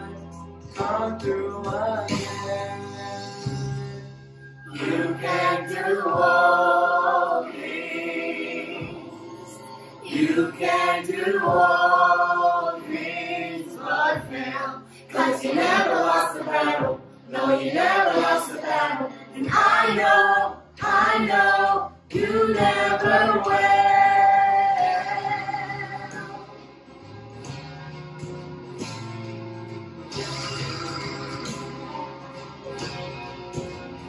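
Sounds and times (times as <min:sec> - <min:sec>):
family group singing worship song: 0:00.0 - 0:03.5, 0:04.7 - 0:26.5.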